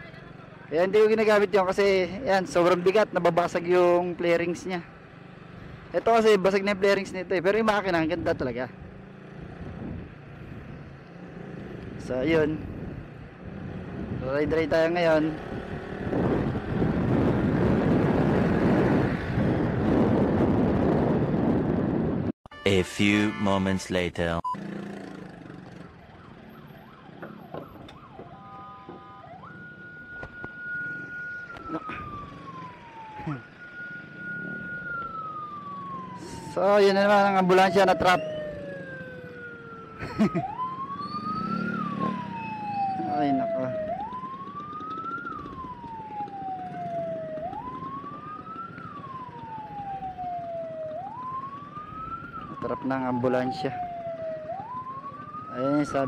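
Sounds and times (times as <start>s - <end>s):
engine and traffic noise: 0.0s - 56.0s
ambulance siren: 22.5s - 56.0s.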